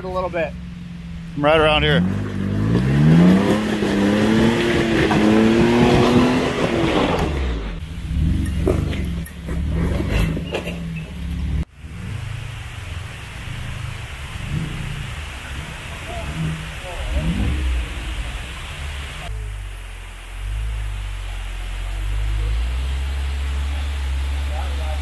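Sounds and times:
off-road vehicle engine revving: 0.0s - 25.0s
steady hiss: 11.8s - 25.0s.

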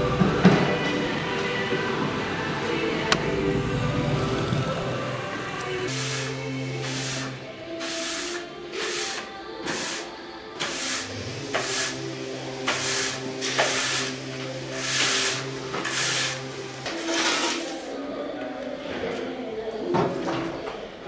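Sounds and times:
background music: 0.0s - 21.0s
push broom sweeping sawdust: 5.8s - 17.8s.

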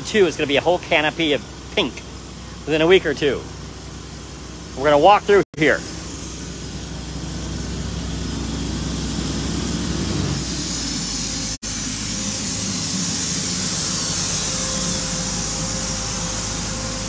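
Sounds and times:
bright hiss: 5.6s - 17.0s.

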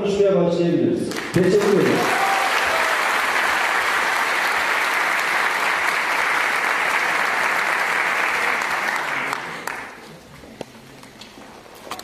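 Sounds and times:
large audience applauding: 1.1s - 10.1s.

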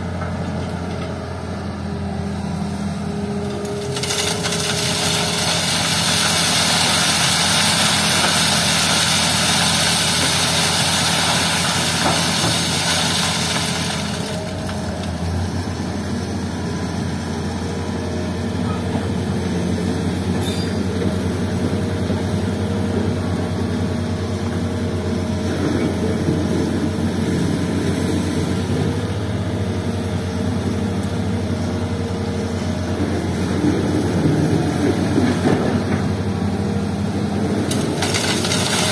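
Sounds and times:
excavator diesel engine running: 0.0s - 38.9s
sand and gravel pouring through sieve: 3.8s - 14.5s, 37.8s - 38.9s.

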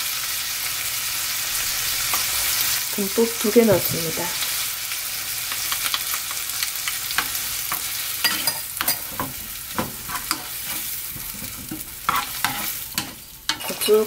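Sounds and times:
fish sizzling in a frying pan: 0.0s - 14.0s
wooden spoon scraping a pan: 7.2s - 14.0s.

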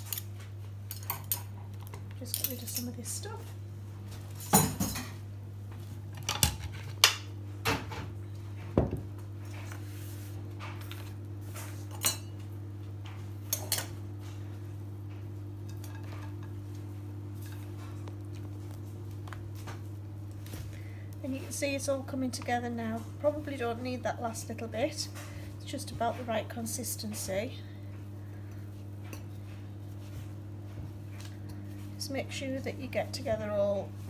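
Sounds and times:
steady low hum: 0.0s - 34.0s
dishes and utensils clinking: 4.4s - 5.2s, 11.9s - 12.4s, 15.7s - 16.6s.

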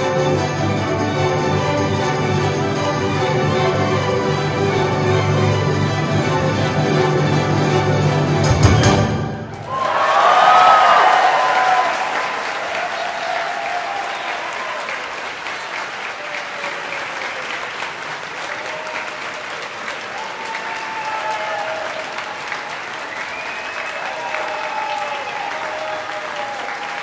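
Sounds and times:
audience applauding: 0.0s - 8.5s, 9.5s - 27.0s
people cheering: 9.5s - 27.0s.

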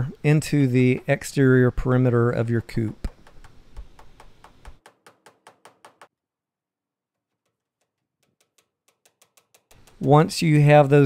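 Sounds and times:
hammer tapping staples into wood: 3.0s - 6.1s, 7.5s - 10.4s.

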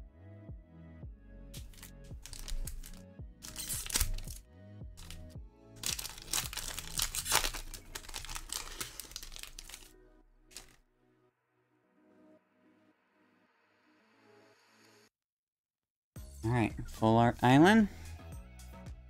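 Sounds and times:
background music: 0.0s - 14.7s, 16.2s - 19.0s
foil wrapper crinkling and tearing: 1.6s - 4.4s, 5.0s - 9.9s, 10.5s - 10.8s.

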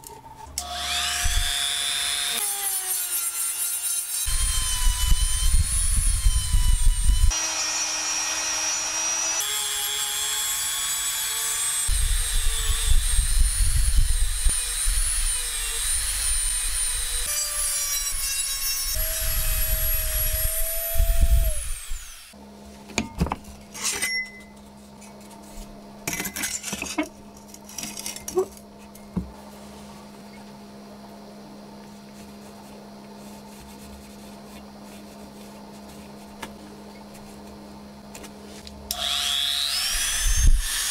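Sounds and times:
rotary tool whining: 4.2s - 22.4s.

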